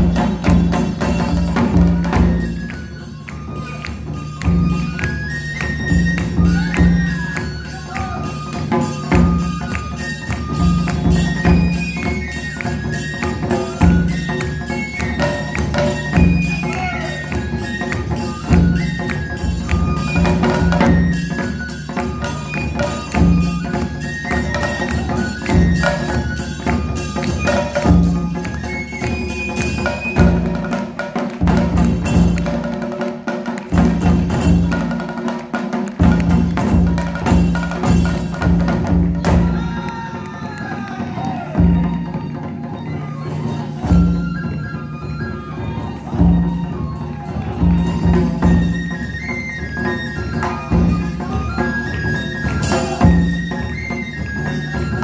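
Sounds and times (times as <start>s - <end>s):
bamboo flute melody: 0.0s - 55.0s
barrel drums beating: 22.9s - 42.1s.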